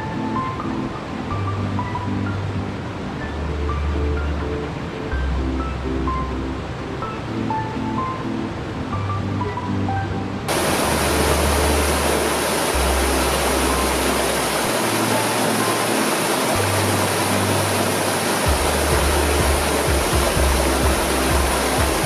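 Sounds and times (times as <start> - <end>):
music with deep bass notes: 0.0 - 22.0
stream rushing over boulders: 10.5 - 22.0.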